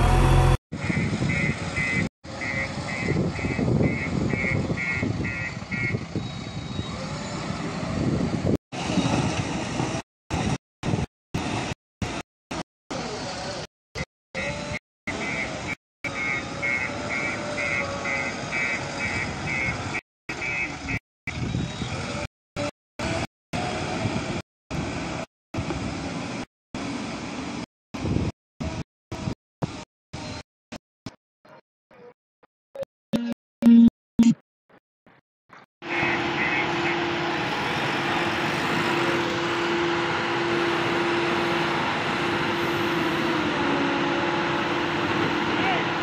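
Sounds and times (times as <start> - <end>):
diesel engine running: 0.0 - 1.8, 35.8 - 46.0.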